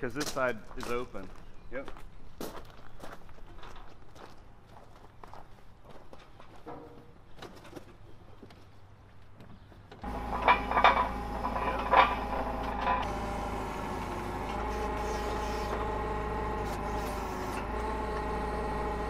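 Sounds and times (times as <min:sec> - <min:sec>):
forklift engine idling: 0:10.0 - 0:19.0
sharp metal clanks: 0:10.2 - 0:13.1.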